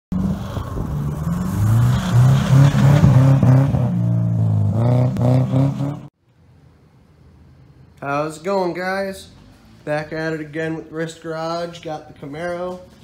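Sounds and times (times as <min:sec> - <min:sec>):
car engine revving hard: 0:00.1 - 0:06.1.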